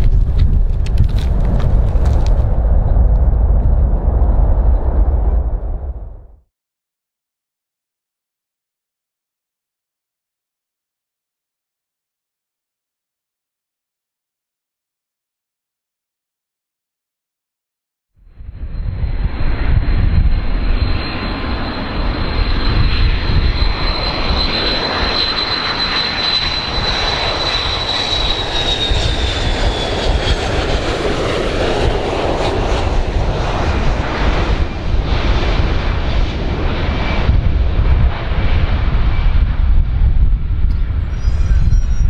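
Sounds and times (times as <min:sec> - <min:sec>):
jet plane flying past: 0:00.0 - 0:06.4, 0:18.3 - 0:42.0.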